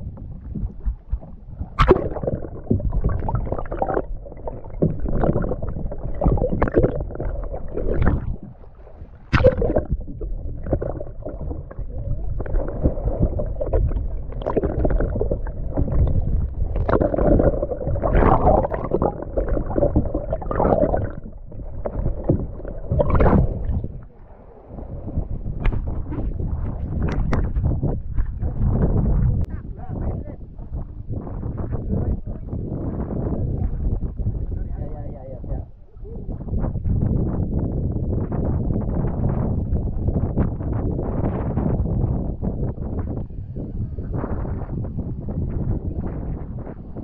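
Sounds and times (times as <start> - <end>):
sea water sloshing and splashing: 0.0 - 28.9.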